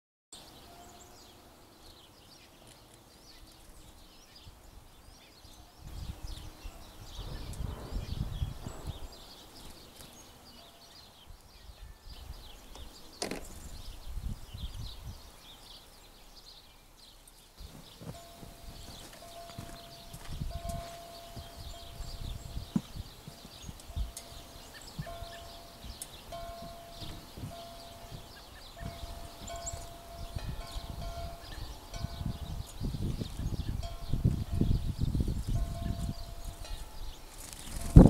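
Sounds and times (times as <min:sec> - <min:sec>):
small birds chirping: 0:00.4 - 0:38.0
low rumble: 0:07.1 - 0:09.2.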